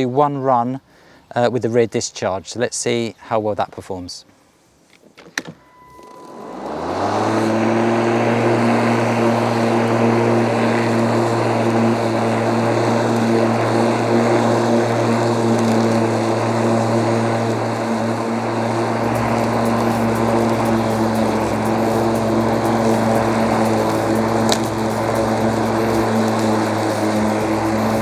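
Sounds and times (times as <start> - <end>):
electric lawn mower humming: 5.8 - 28.0.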